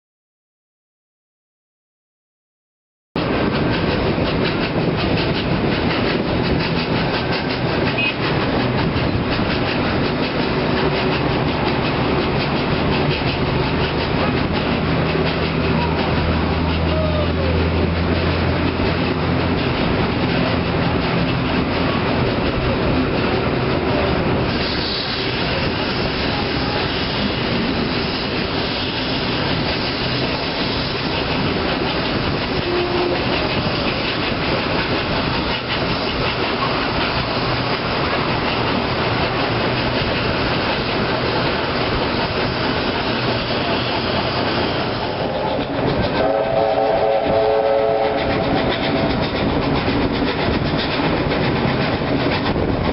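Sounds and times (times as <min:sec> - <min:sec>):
wheels clicking over rail joints: 0:03.2 - 0:47.3, 0:47.9 - 0:52.9
steam locomotive exhaust beats: 0:03.2 - 0:52.9
steam hiss: 0:24.4 - 0:45.4
steam whistle: 0:32.5 - 0:33.3, 0:46.2 - 0:48.5.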